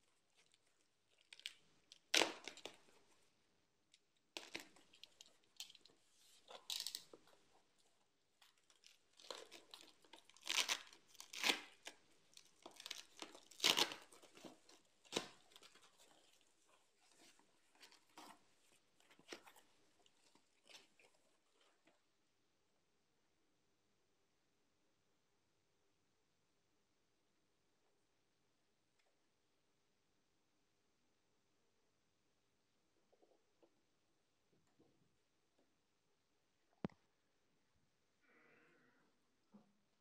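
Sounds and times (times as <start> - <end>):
plastic bag ripping: 9.2 - 16.0.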